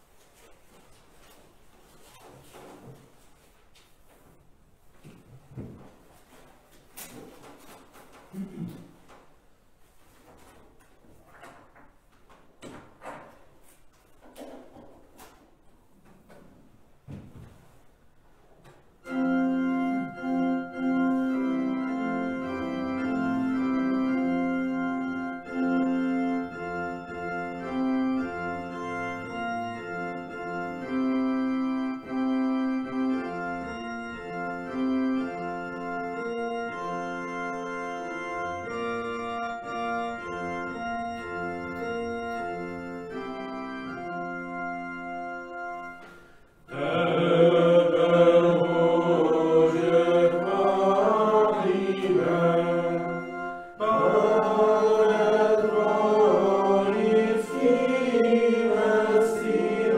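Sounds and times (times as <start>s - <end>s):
church organ chords: 19.0s - 59.9s
people singing a hymn: 46.7s - 59.9s.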